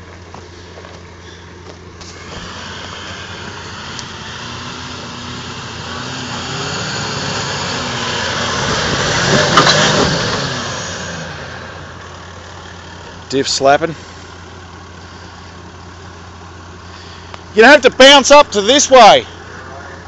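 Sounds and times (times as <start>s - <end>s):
vehicle engine crawling over rocks: 0.0s - 20.0s.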